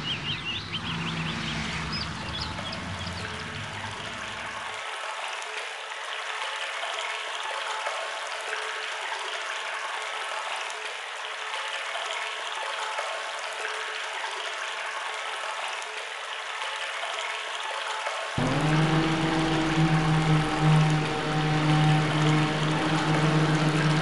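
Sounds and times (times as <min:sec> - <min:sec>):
low rumble: 0:18.4 - 0:24.0
water rushing into well: 0:18.4 - 0:24.0.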